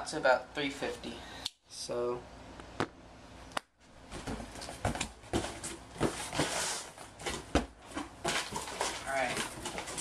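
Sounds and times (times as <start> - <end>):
cardboard flaps knocking and scraping: 4.1 - 10.0
packing paper rustling: 5.4 - 10.0.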